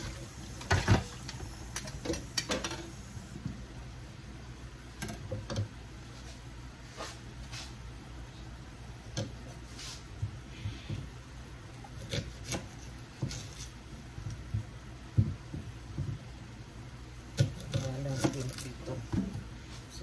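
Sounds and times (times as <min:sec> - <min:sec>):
knife cutting on wooden board: 0:11.9 - 0:13.8.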